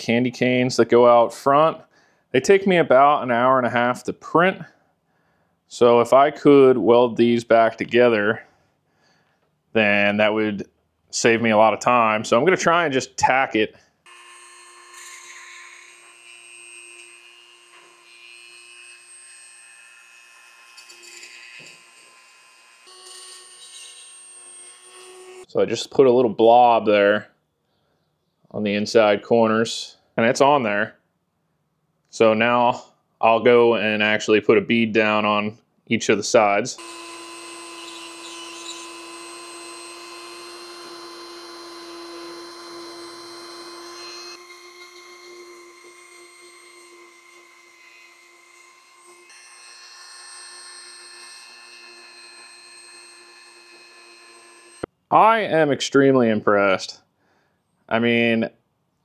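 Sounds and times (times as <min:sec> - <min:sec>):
rotary tool whining: 0:14.1 - 0:25.5, 0:36.8 - 0:54.9.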